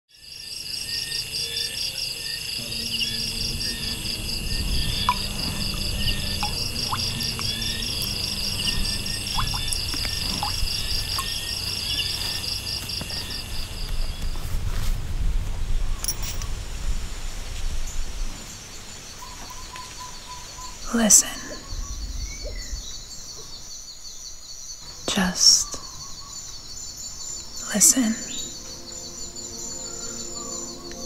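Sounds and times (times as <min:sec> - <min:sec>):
insects chirring: 0:00.1 - 0:14.8, 0:15.8 - 0:31.0
low rumbling background: 0:02.6 - 0:14.2.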